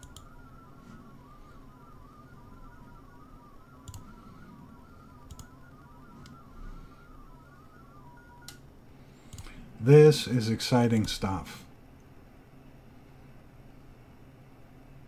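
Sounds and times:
sharp clicks: 0.0s - 0.3s, 3.8s - 4.2s, 5.2s - 5.6s, 9.3s - 9.6s.

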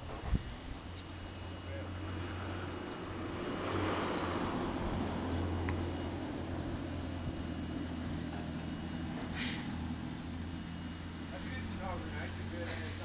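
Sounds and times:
low engine hum: 0.0s - 13.0s
outdoor background noise: 0.0s - 13.0s.

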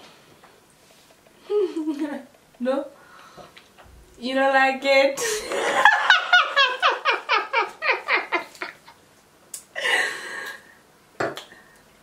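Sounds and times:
woman laughing high-pitched: 1.5s - 2.3s, 5.2s - 8.8s.

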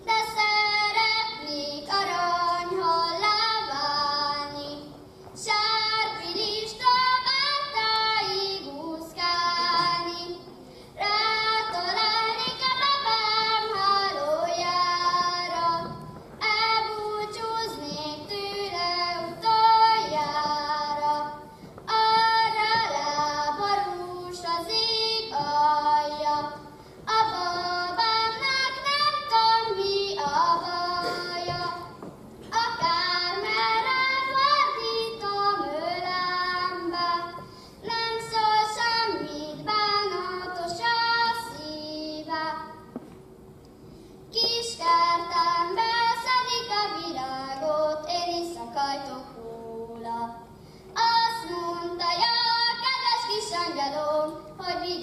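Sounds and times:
singer breathing: 10.6s - 11.0s, 26.7s - 27.1s, 37.4s - 37.8s, 43.8s - 44.3s, 50.5s - 51.0s.

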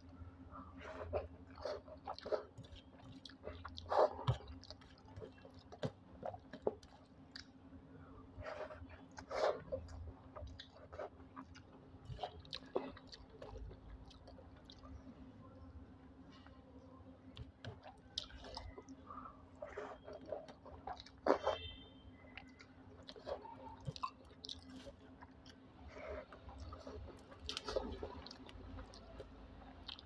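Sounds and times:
wet chewing and mouth smacks: 0.8s - 7.8s, 8.5s - 15.0s, 17.3s - 30.0s.

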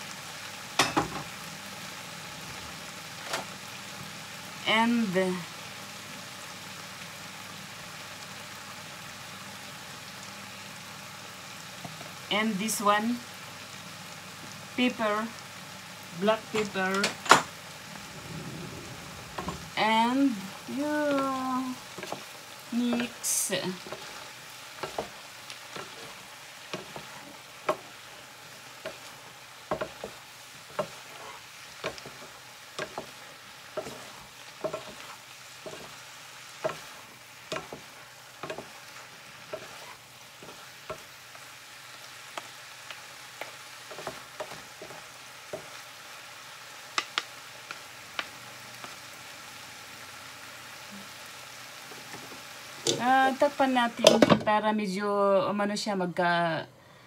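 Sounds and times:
vegetables sizzling in a frying pan: 0.0s - 56.7s
wooden spatulas knocking a pan: 29.7s - 31.1s, 33.8s - 35.1s, 37.5s - 38.8s.

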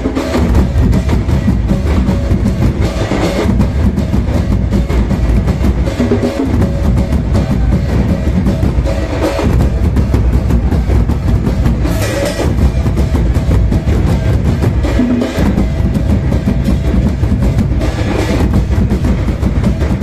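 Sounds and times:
kettle drums booming: 0.0s - 20.0s.

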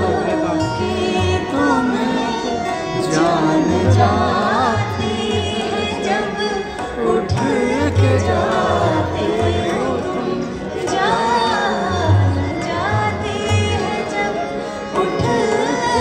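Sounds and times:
instrumental accompaniment: 0.0s - 16.0s
tabla: 0.0s - 16.0s
woman singing into microphone: 0.0s - 16.0s.

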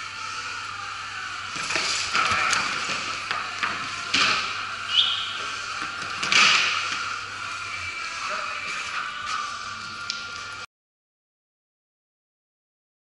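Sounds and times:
short high squeak: 4.9s - 5.4s.

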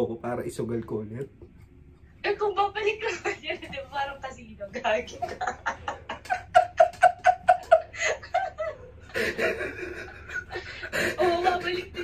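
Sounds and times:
man laughing hard: 5.2s - 11.9s.

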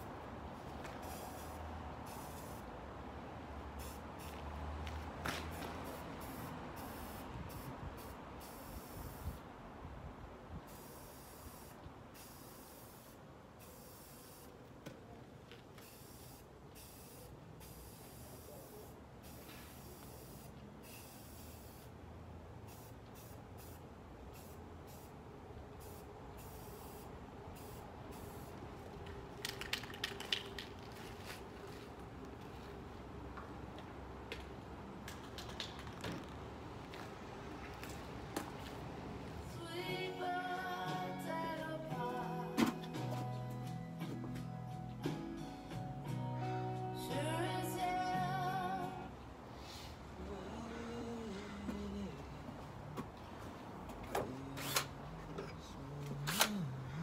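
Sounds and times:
aerosol spray can hissing: 1.0s - 2.6s, 10.7s - 14.5s.

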